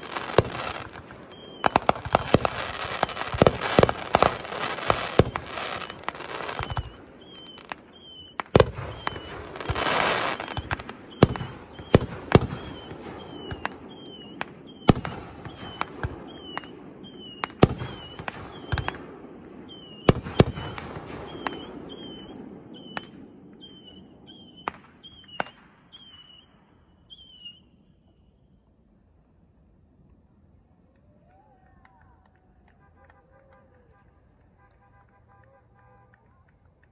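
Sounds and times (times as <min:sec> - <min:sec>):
fireworks crackling: 0:00.0 - 0:27.6
fireworks bursting with sharp bangs: 0:00.0 - 0:28.2.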